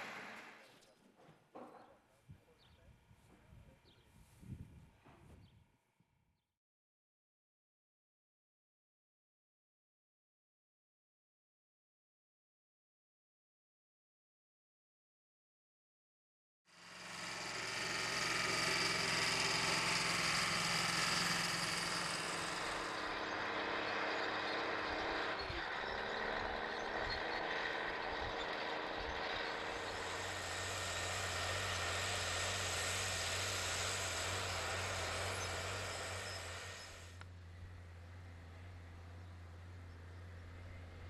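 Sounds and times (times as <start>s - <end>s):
tractor diesel engines under load: 0.0s - 5.6s, 16.8s - 41.0s.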